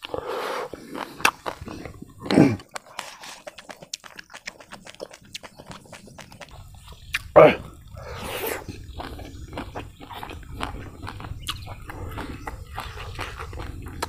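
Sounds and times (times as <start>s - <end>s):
chewing and lip-smacking: 0.0s - 14.0s.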